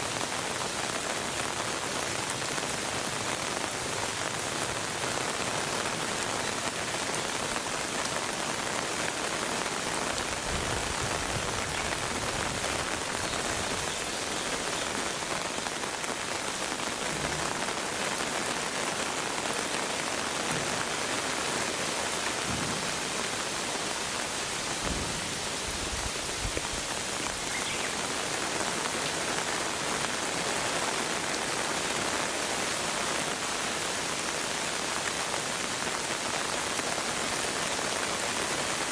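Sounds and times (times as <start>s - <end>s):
rain pattering on concrete: 0.0s - 38.9s.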